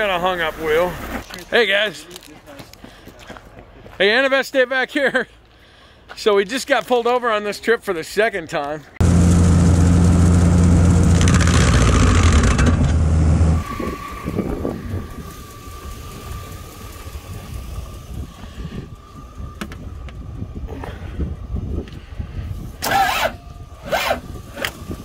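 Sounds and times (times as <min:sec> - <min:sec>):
faint high whine: 0:13.5 - 0:21.0.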